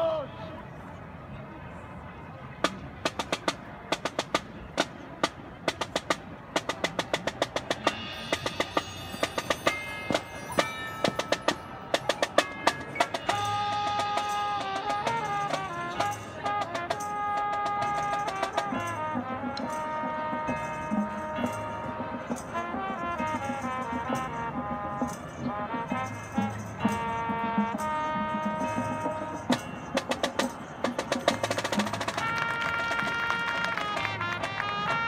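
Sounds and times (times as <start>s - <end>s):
drum strokes: 2.6s - 34.7s
marching band playing: 2.6s - 35.0s
wind band chords: 2.7s - 35.0s
ringing pitched percussion: 7.8s - 15.4s.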